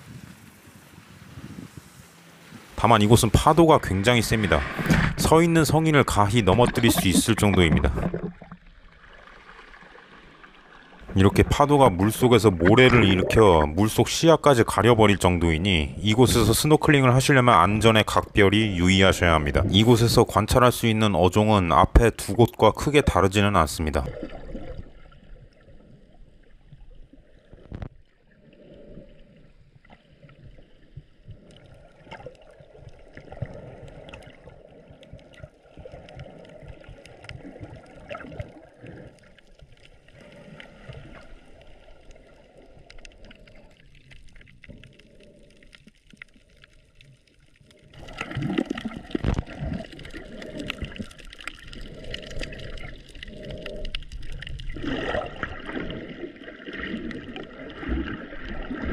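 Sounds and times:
muffled underwater gurgling: 2.8s - 8.6s, 11.0s - 25.0s, 47.7s - 58.9s
small underwater clicks: 29.8s - 58.9s.

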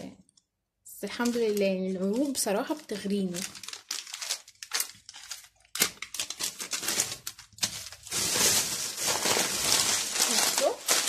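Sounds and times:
plastic bags crinkling: 1.0s - 11.0s.

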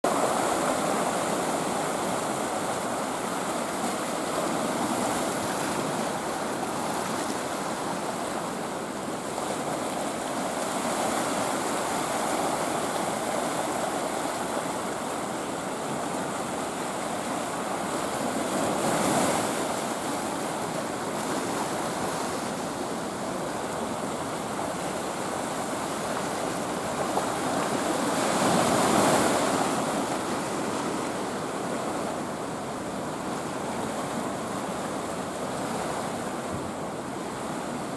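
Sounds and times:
sea waves washing over rocks: 0.1s - 37.9s.

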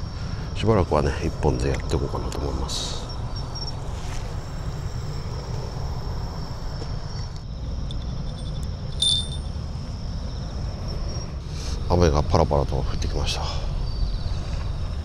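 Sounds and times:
insects trilling: 0.0s - 15.0s
short high ping: 9.0s - 9.5s.

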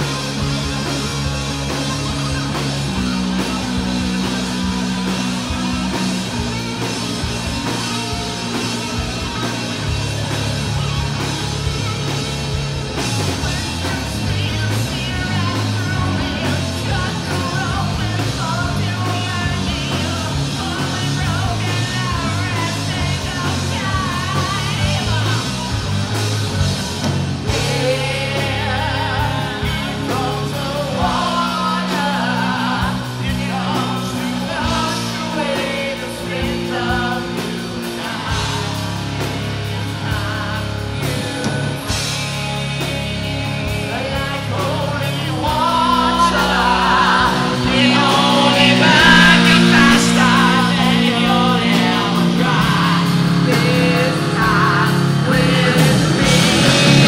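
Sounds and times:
drum kit: 0.0s - 57.0s
electric guitars: 0.0s - 57.0s
women singing: 27.5s - 41.9s, 42.8s - 57.0s.

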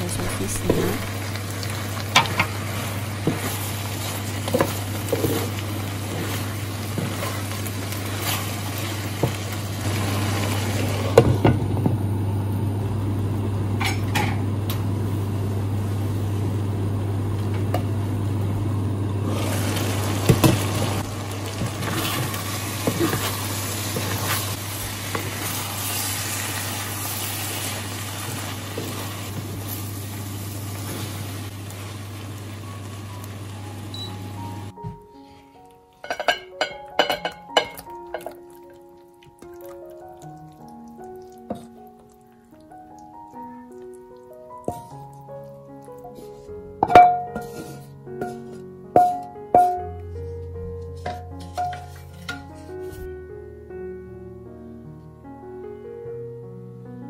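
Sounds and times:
food sizzling in frying pan: 0.0s - 49.8s
wooden spatula scraping a pan: 46.1s - 49.8s, 50.8s - 53.1s
glass lid clinking: 46.8s - 47.5s.

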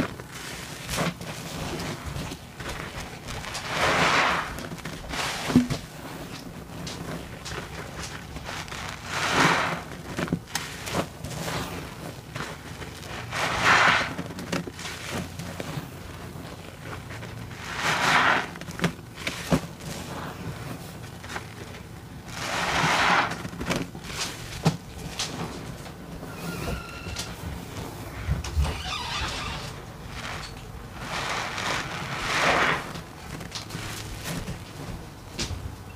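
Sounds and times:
sponge squishing: 0.0s - 35.2s
sponge squeezed in sudsy water: 0.2s - 24.5s, 29.8s - 34.3s.

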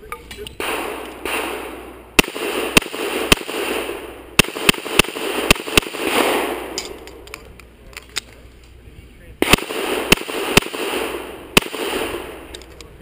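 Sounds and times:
pistol shots: 0.6s - 7.2s, 9.4s - 12.7s.

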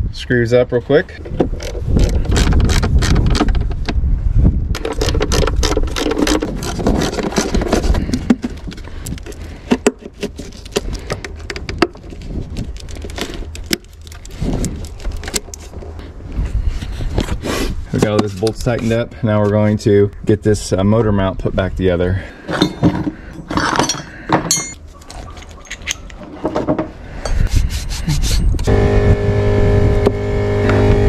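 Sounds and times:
hoses being handled: 4.8s - 19.0s
metal socket tools clinking: 22.5s - 26.2s.

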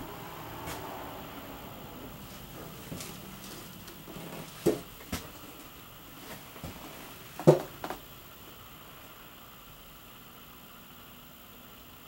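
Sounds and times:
short knocks and bumps: 2.5s - 5.5s, 6.3s - 8.0s.

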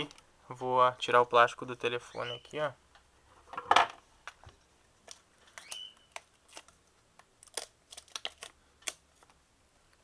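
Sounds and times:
plastic crinkles and clicks: 5.0s - 9.4s
plastic film peeling crackle: 5.0s - 9.4s.

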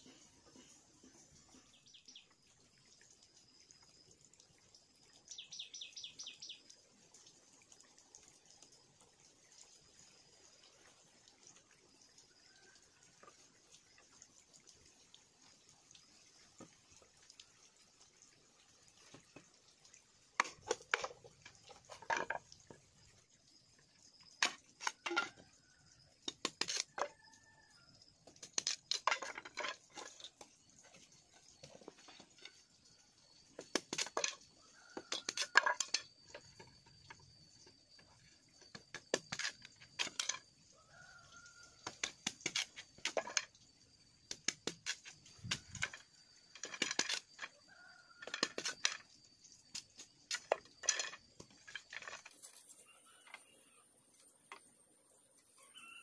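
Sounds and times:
bamboo splitting with sharp cracks: 26.2s - 27.0s, 33.6s - 34.4s, 41.9s - 43.2s, 44.3s - 45.8s.

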